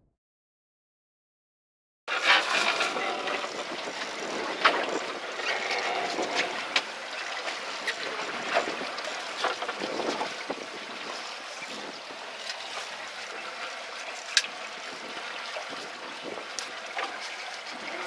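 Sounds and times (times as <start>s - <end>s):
sea noise: 2.1s - 18.0s
wind: 2.1s - 18.0s.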